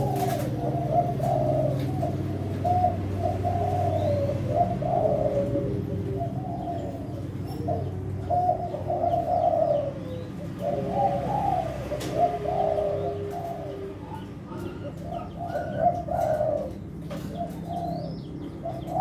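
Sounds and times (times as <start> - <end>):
doves cooing: 0.0 - 19.0.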